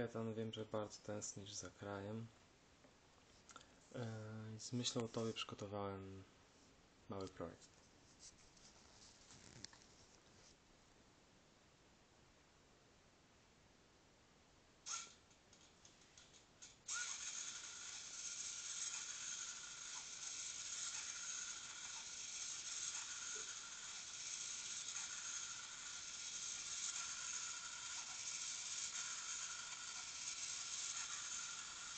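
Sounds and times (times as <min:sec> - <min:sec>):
motor-driven mechanism whirring: 0:14.9 - 0:15.2, 0:16.2 - 0:31.9.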